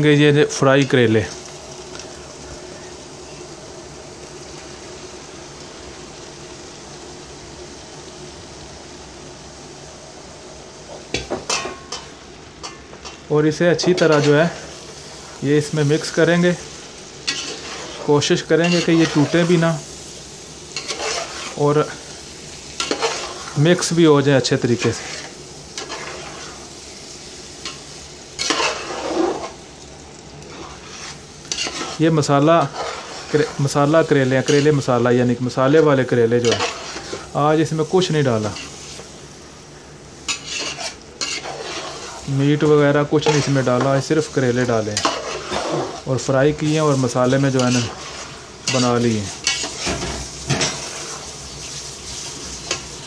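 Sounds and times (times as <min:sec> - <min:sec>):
frying sizzle: 0:00.0 - 0:53.0
steady hiss with faint hum: 0:00.0 - 0:53.0
metal spatula stirring in pot: 0:13.9 - 0:14.5, 0:17.2 - 0:19.5, 0:20.7 - 0:21.6, 0:22.8 - 0:23.6, 0:24.8 - 0:26.6, 0:28.4 - 0:29.6, 0:30.4 - 0:33.8, 0:36.4 - 0:37.3, 0:40.3 - 0:42.3, 0:43.2 - 0:44.0, 0:44.9 - 0:46.1, 0:47.4 - 0:51.2.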